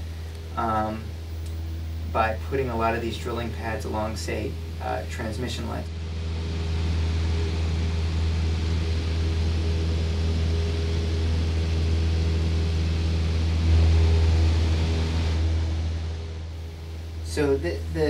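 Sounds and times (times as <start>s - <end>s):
propeller plane droning: 0.0s - 18.0s.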